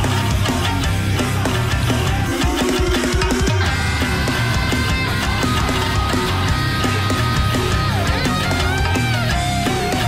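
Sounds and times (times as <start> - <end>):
rock music with guitar and drums: 0.0 - 10.0.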